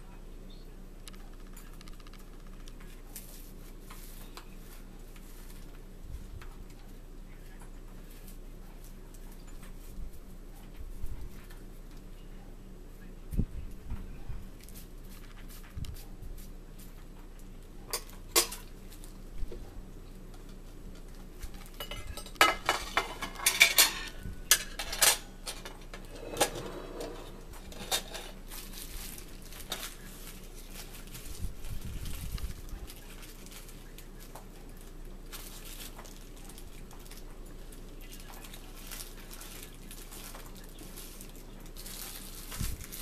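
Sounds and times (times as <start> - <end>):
cutlery clinking and scraping on a plate: 17.9 - 18.7, 21.8 - 28.4.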